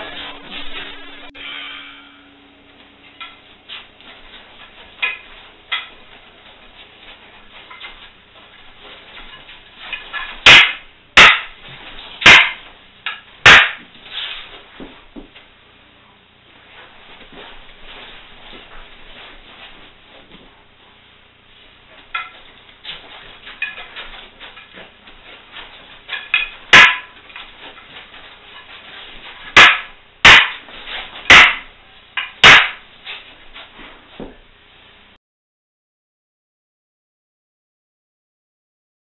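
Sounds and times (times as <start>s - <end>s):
wooden staffs knocking together: 4.9s - 6.1s, 9.1s - 11.6s, 12.2s - 14.0s, 22.1s - 24.9s, 25.6s - 34.4s.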